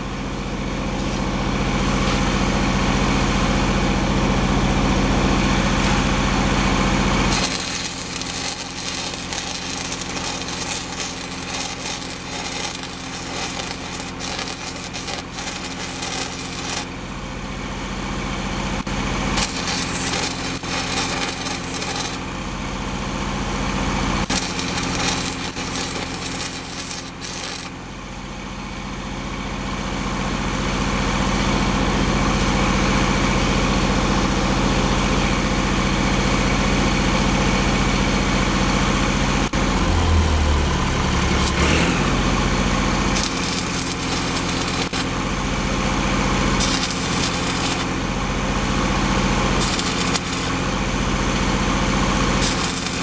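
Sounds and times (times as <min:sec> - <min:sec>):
engine running steadily: 0:00.0 - 0:53.0
welding arc crackling and sizzling: 0:00.9 - 0:02.2, 0:06.7 - 0:17.1, 0:18.8 - 0:22.5, 0:24.1 - 0:27.8, 0:39.4 - 0:45.4, 0:46.0 - 0:53.0.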